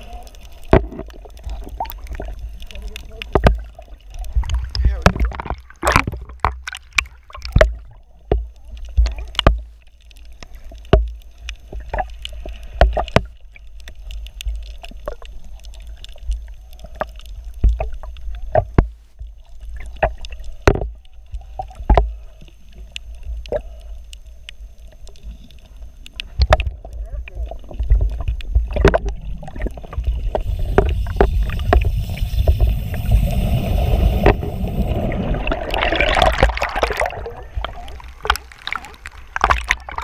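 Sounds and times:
water sloshing: 0.0 - 9.7, 27.5 - 40.0
muffled underwater rumble: 0.0 - 40.0.

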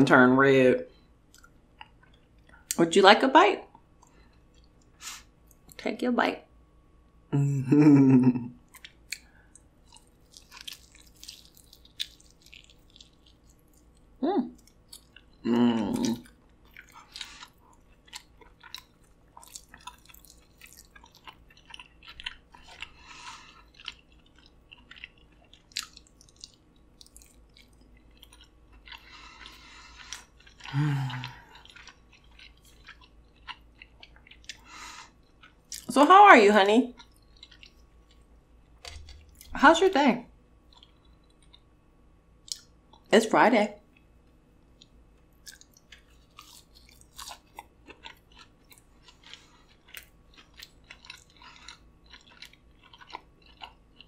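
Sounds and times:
close-miked chewing: 3.7 - 5.8, 8.6 - 39.6, 40.6 - 41.7, 42.4 - 43.1, 43.8 - 54.0
wet mouth clicks and smacks: 42.4 - 42.7.

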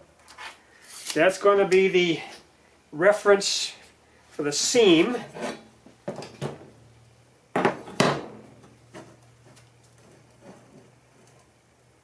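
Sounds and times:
handling knocks and rustles: 5.0 - 6.8, 7.6 - 11.6.

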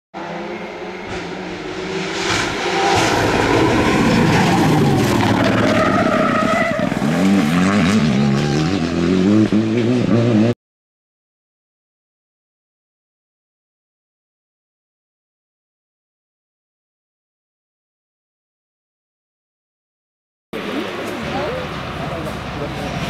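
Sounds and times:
rally car engine revving: 0.2 - 10.6.

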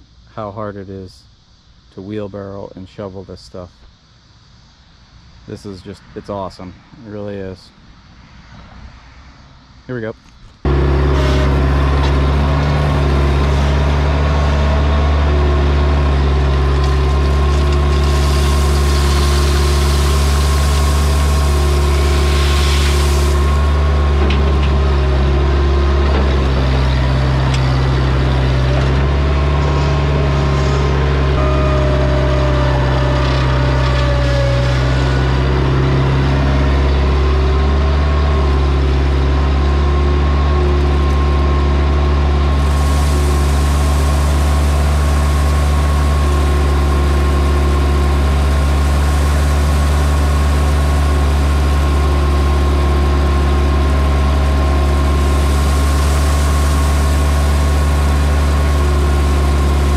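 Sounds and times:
loader engine running: 10.6 - 59.9
loud rushing hiss: 16.2 - 24.2, 42.6 - 45.5
higher tones shifting in pitch: 25.4 - 37.7.

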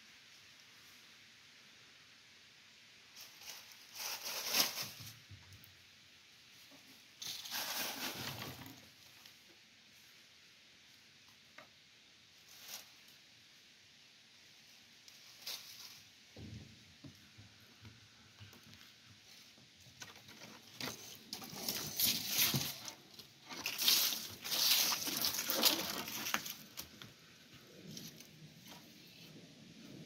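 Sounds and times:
rustling and scuffing: 6.6 - 9.2, 15.0 - 29.2.

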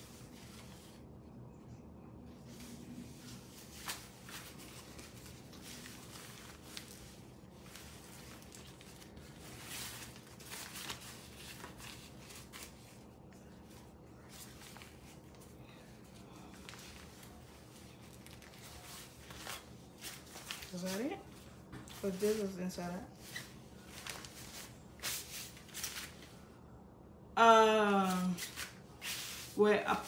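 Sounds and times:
fabric rustling: 2.3 - 26.4, 28.0 - 30.0.

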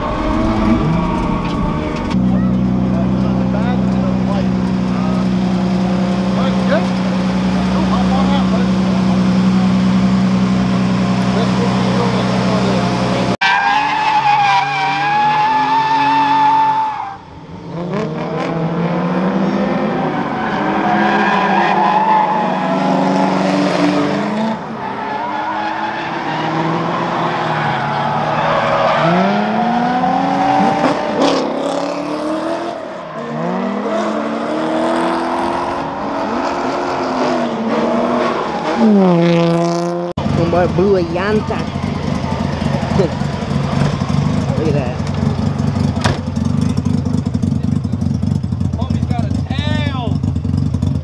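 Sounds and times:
car engines revving: 0.0 - 51.0
tyre squeal: 13.4 - 17.2.

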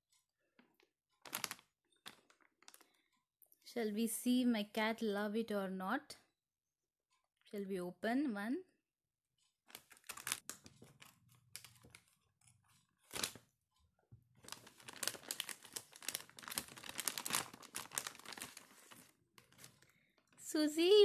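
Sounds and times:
plastic ripping: 1.2 - 2.8, 9.7 - 12.1, 13.0 - 13.4, 14.4 - 19.8
scissors snipping plastic pouch: 1.2 - 2.8, 9.7 - 13.4, 14.4 - 19.8
plastic pouch crinkling: 1.2 - 2.9, 9.7 - 12.2, 12.8 - 13.5, 14.4 - 20.4.

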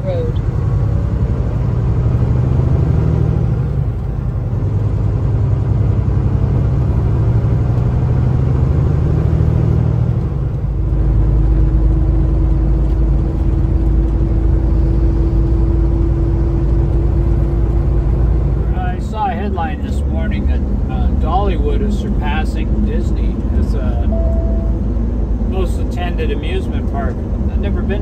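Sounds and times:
road noise: 0.0 - 28.0
truck diesel engine: 0.0 - 28.0
steady hum: 18.7 - 27.9.

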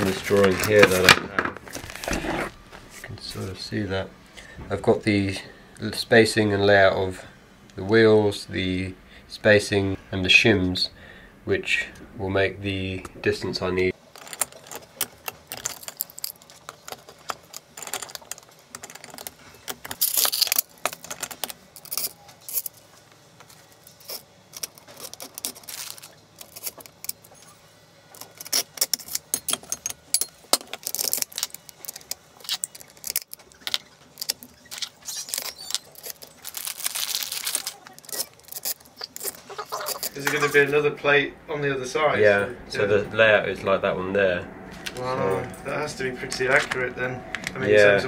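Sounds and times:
metal hardware clinking and rattling: 14.1 - 22.8, 28.1 - 40.7.

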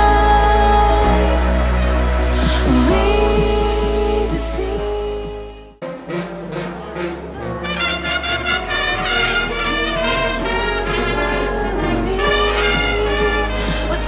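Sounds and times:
military brass band march: 5.8 - 14.0.

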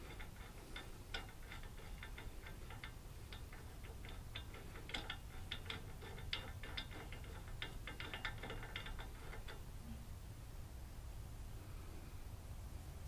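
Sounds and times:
metallic clicking of threads: 0.0 - 9.9.

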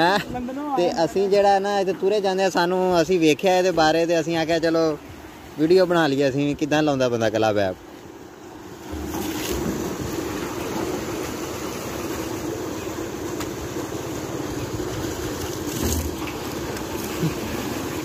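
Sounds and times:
water rushing through pipe: 8.6 - 18.0.

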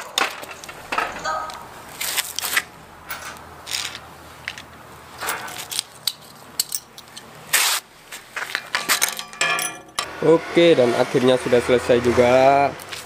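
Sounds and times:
tools clicking: 5.3 - 7.3, 8.7 - 10.1.

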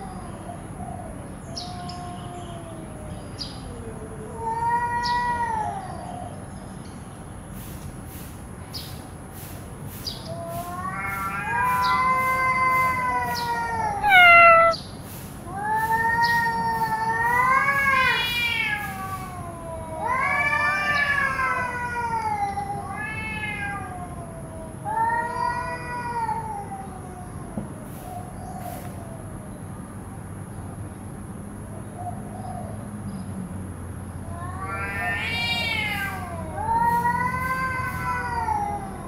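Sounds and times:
cats yowling: 1.5 - 6.3, 10.3 - 14.8, 15.4 - 27.6, 34.3 - 39.0.

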